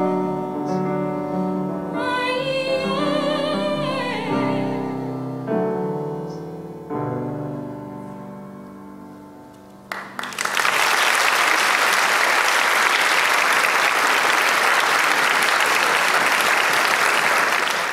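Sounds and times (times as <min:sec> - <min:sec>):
grand piano chord: 0:00.0 - 0:09.9
audience applause: 0:09.9 - 0:17.9.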